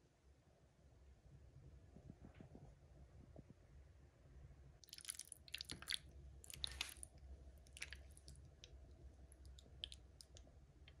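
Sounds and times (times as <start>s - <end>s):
fork squishing through pasta: 4.8s - 10.4s.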